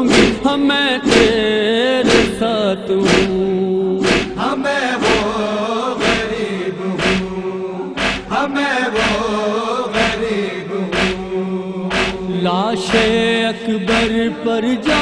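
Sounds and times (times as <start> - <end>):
sharp beat: 0.0 - 2.4, 3.0 - 3.4, 4.0 - 4.4, 5.0 - 5.4, 6.0 - 6.4, 7.0 - 7.4, 8.0 - 9.4, 10.0 - 10.3, 10.9 - 13.3, 13.9 - 14.2
voices chanting: 4.0 - 14.3
held drone: 7.0 - 8.4, 10.9 - 12.3.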